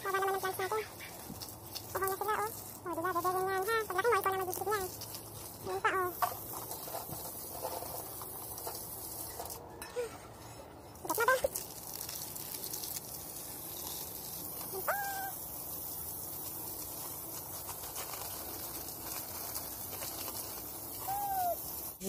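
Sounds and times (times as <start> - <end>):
hose spraying water: 0.0 - 22.0
short high calls: 14.7 - 15.4, 21.0 - 21.6.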